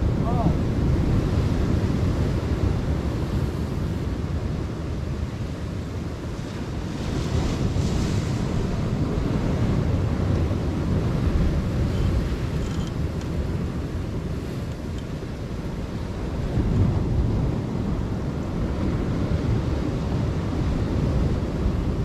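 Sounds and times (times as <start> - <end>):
ocean waves breaking on rocks: 0.0 - 22.0
wind rumbling on microphone: 0.0 - 22.0.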